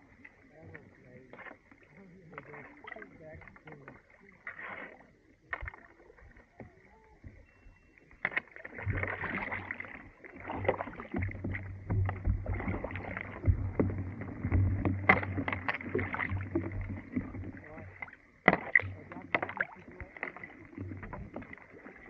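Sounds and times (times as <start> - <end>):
kayak paddle strokes: 0.0 - 22.0
ice knocking and scraping on hull: 10.4 - 21.7.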